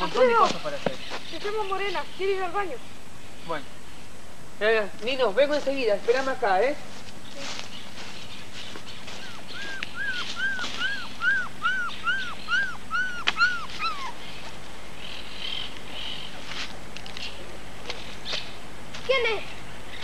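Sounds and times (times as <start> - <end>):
puppy whining: 9.6 - 14.2.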